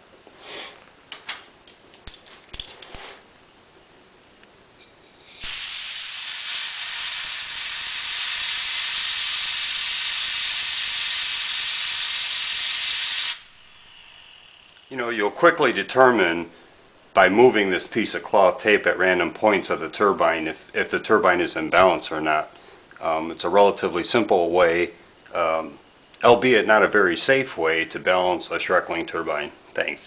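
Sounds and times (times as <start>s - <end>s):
compressed air hissing: 2.8s - 3.3s, 5.1s - 14.9s.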